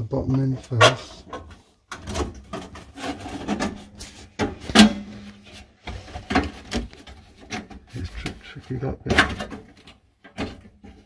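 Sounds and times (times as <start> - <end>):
metal scraping on metal: 2.5 - 5.6.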